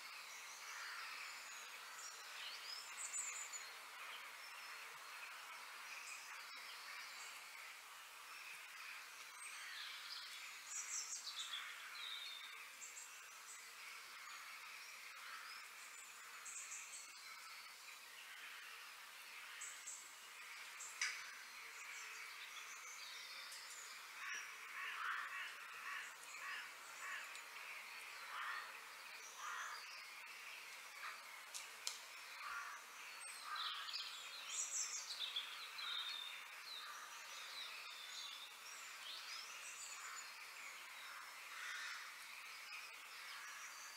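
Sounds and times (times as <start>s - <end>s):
birds chirping: 0.0s - 43.9s
crow-like calls: 24.2s - 27.4s, 28.3s - 28.8s, 29.4s - 29.8s, 32.4s - 32.8s, 41.5s - 42.1s.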